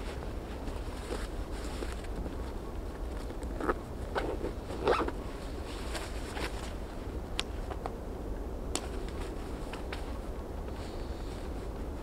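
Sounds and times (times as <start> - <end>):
wind rumble on microphone: 0.0 - 12.0
zipper rasping: 4.8 - 5.1.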